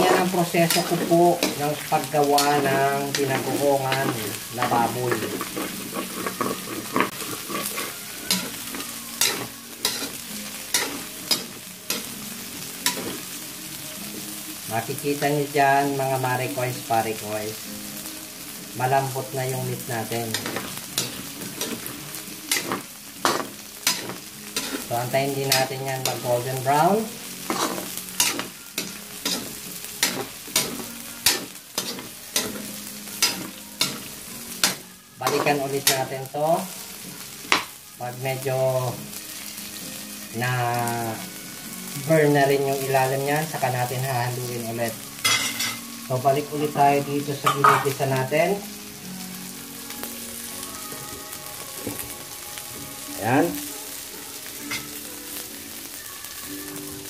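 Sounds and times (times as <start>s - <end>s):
metal spatula scraping a wok: 0.0s - 13.4s, 18.8s - 36.3s, 45.2s - 45.9s
pork sizzling in a wok: 0.0s - 57.0s.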